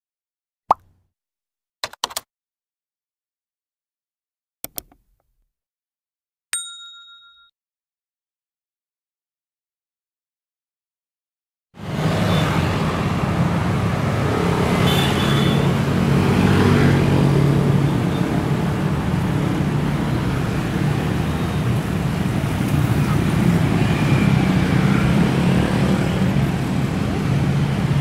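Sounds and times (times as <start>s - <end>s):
cars passing: 11.8s - 28.0s.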